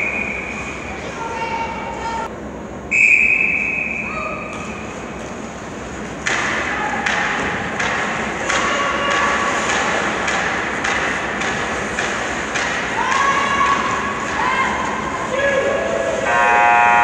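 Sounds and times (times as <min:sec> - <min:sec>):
referee's whistle blast: 0:02.9 - 0:04.5
sticks knocking on ice and boards: 0:06.2 - 0:13.8.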